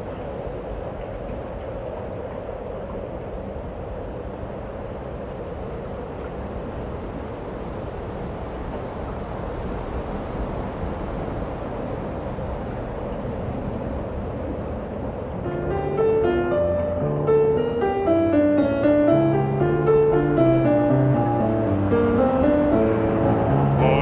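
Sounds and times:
steady rushing rumble: 0.0 - 24.0.

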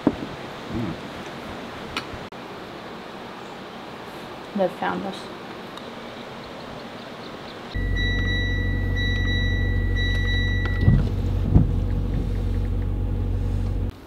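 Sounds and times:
car cabin hum: 7.8 - 13.9
high steady tone: 7.8 - 13.9
thumps: 7.8 - 13.9.

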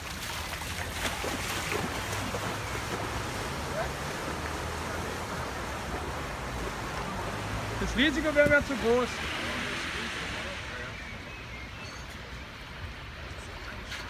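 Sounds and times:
floodwater sloshing around wading person: 0.0 - 7.8.

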